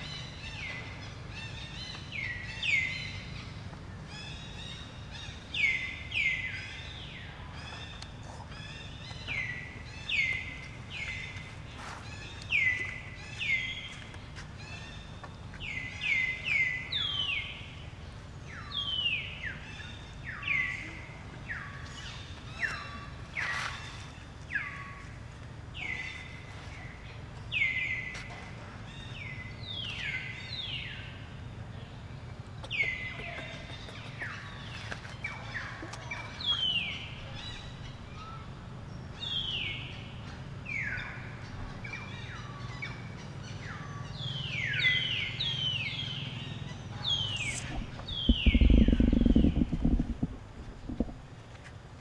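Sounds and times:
birds whistling: 0:40.7 - 0:51.2
low hum: 0:46.9 - 0:52.0
loud low noise: 0:47.1 - 0:51.5.

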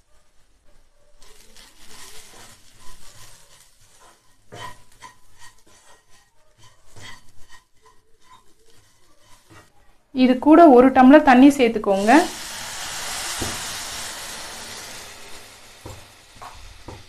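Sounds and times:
spatula scraping a pan: 0:01.2 - 0:09.8, 0:12.0 - 0:17.0
spatula knocking on pan: 0:04.0 - 0:09.7, 0:15.7 - 0:17.0.

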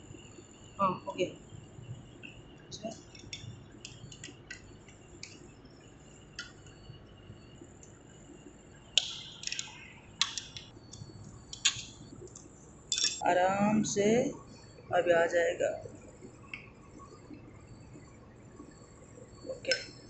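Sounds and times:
metal clicks and clinks: 0:09.0 - 0:13.2.

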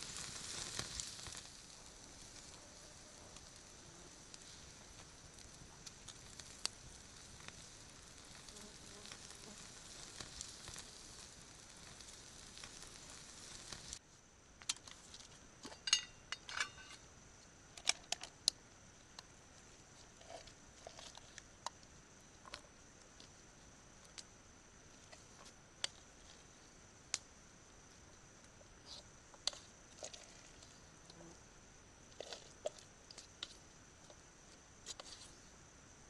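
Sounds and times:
faint outdoor hiss: 0:00.0 - 0:36.0
metal pot clinking: 0:15.7 - 0:17.0.

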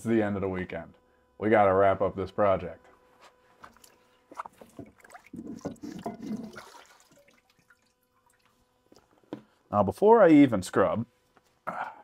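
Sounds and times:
liquid sloshing and splashing: 0:03.7 - 0:08.6
water dripping: 0:06.4 - 0:08.6.

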